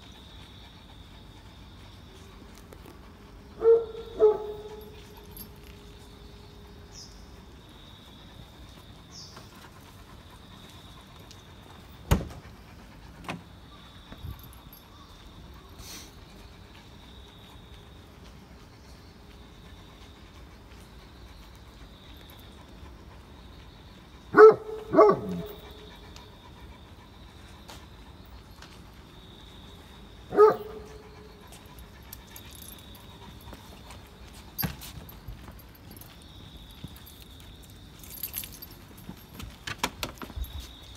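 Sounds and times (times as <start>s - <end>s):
dog barking loudly: 3.6s - 4.8s, 24.3s - 25.6s, 30.3s - 30.8s
dull thump: 12.1s - 12.4s.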